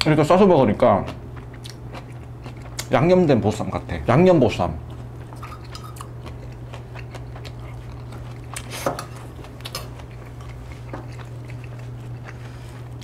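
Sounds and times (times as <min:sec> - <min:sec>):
steady low hum: 0:00.0 - 0:13.0
tableware clinking on dishes: 0:05.4 - 0:06.0.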